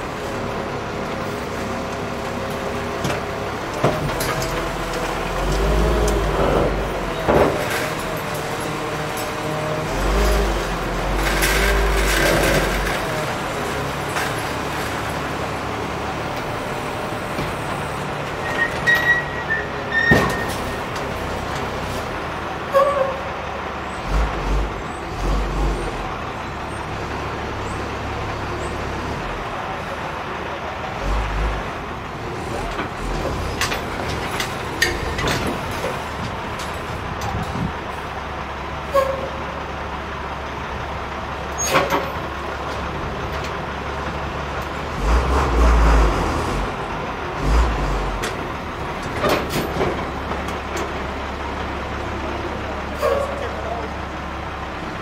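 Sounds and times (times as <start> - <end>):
truck diesel engine running: 20.6 - 55.0.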